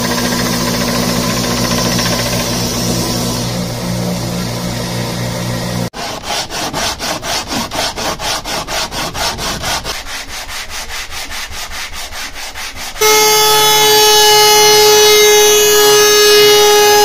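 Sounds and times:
thickness planer whining: 0.0 - 17.0
wood rubbing on sandpaper: 5.9 - 13.3.

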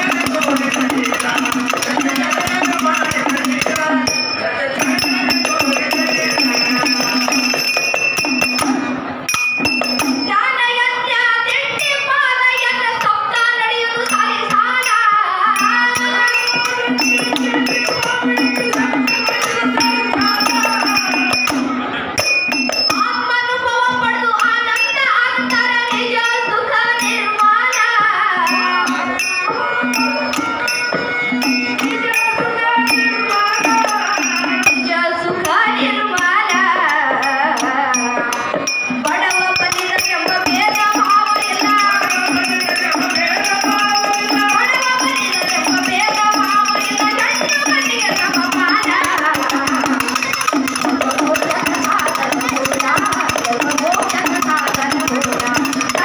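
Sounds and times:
woman singing into a microphone: 0.0 - 7.4, 10.2 - 21.7, 22.9 - 56.0
jingling hand percussion: 0.0 - 56.0.

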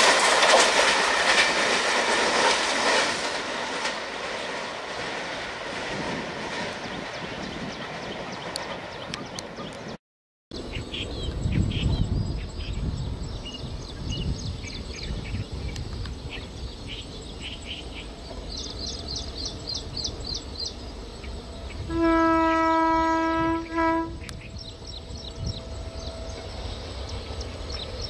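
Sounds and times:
distant train rumbling: 0.0 - 10.0, 10.6 - 28.0
birds chirping: 6.7 - 21.9, 23.6 - 28.0
locomotive horn blast: 21.8 - 24.4.

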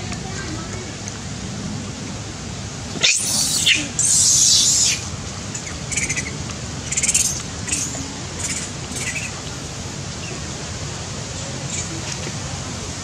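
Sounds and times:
animal squeal: 3.0 - 5.0.

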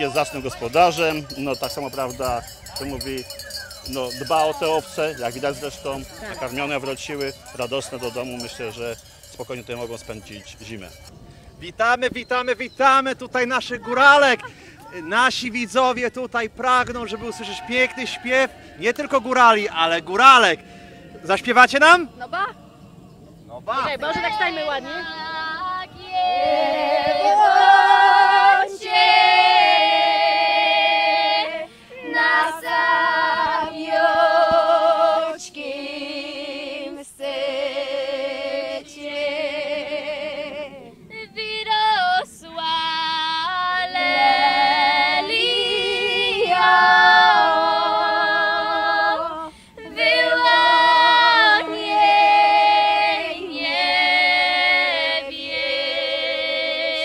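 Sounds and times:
women singing in harmony: 21.2 - 57.0.

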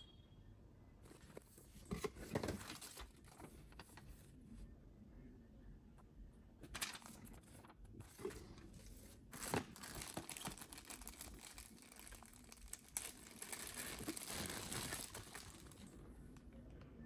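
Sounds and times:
plastic bags crinkling: 9.4 - 16.0.

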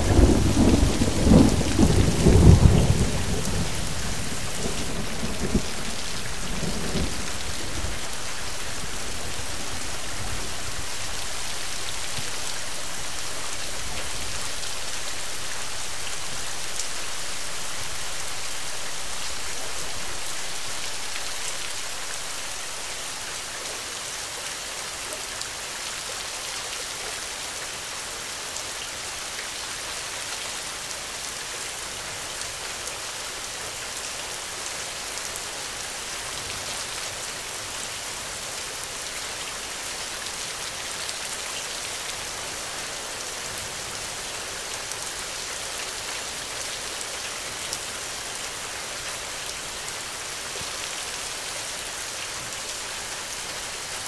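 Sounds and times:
thunder rumbling: 0.0 - 8.9
steady rain falling: 0.0 - 54.0.

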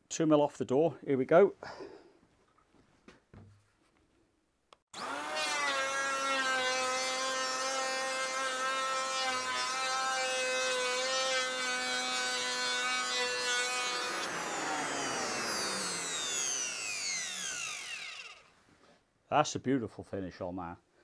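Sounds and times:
electric planer motor whine: 5.0 - 8.4, 12.5 - 18.5.

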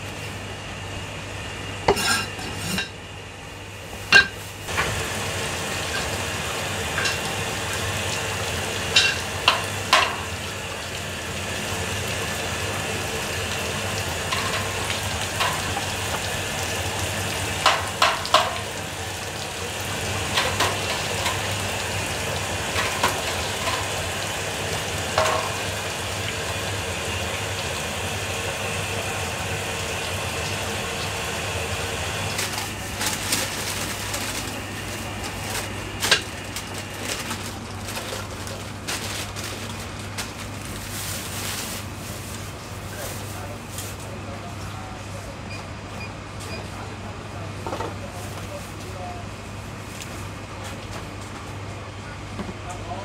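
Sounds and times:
steady background hum: 0.0 - 53.0.

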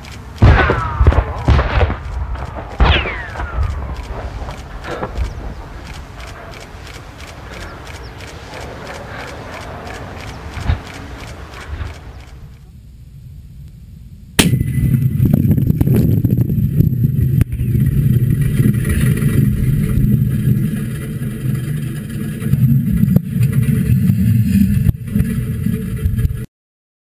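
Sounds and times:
loud low rumble with cracks: 0.0 - 26.5
explosive bang: 0.4 - 5.6, 14.4 - 16.5.

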